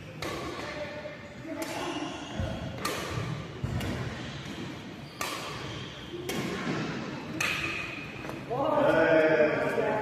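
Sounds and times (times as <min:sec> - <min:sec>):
racket hitting shuttlecock: 0:00.1 - 0:00.8, 0:01.5 - 0:08.4.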